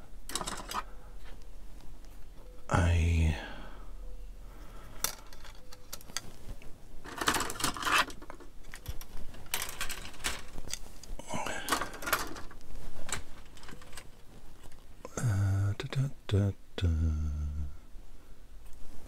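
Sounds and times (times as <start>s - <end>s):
plastic frames clicking and clattering: 0.2s - 0.9s, 7.0s - 14.8s.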